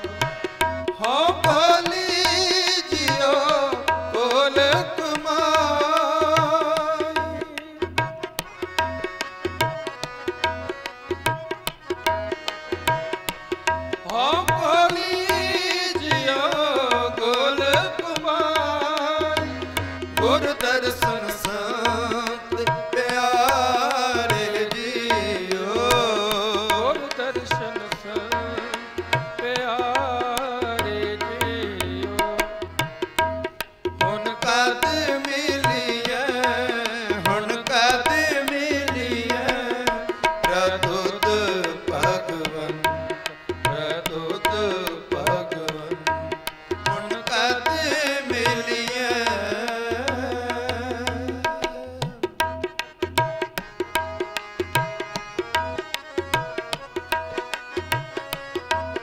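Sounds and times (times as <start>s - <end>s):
harmonium: 0.0s - 59.0s
tabla rhythm: 0.0s - 59.0s
man singing a hymn: 1.0s - 7.8s, 14.1s - 28.8s, 34.1s - 42.9s, 43.6s - 46.0s, 46.9s - 52.0s.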